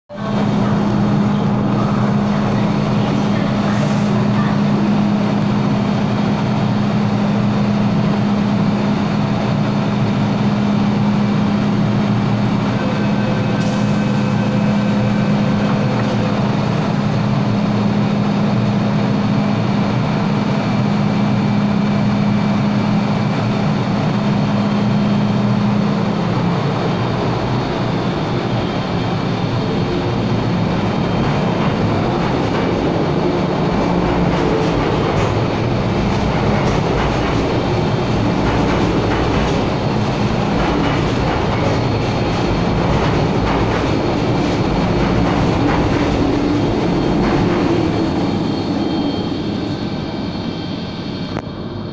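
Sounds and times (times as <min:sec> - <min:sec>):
electric train equipment hum: 0:00.1 - 0:51.9
train motor tones and rumble: 0:00.1 - 0:51.9.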